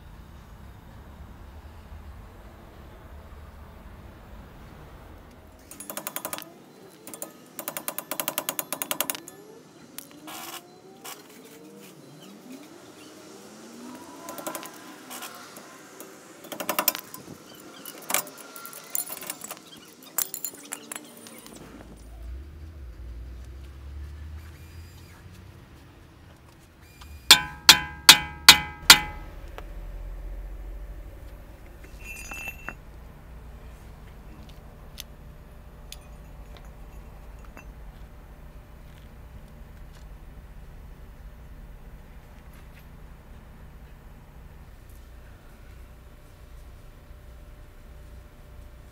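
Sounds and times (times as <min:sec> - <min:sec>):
metal brake parts clinking: 0:15.6 - 0:21.6, 0:27.3 - 0:29.3, 0:31.6 - 0:33.0, 0:35.7 - 0:38.1.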